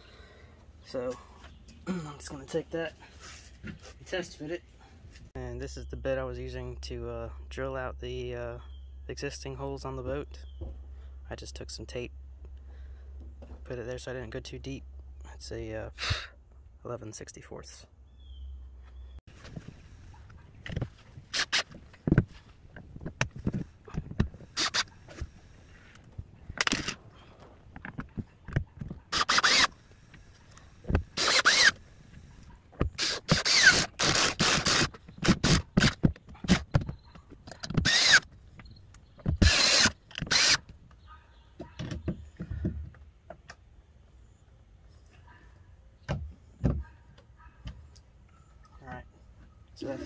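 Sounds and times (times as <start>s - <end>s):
cordless drill drilling: 24.5s - 24.9s, 29.1s - 29.8s, 31.1s - 31.8s, 32.9s - 36.0s, 37.8s - 38.3s, 39.4s - 40.6s.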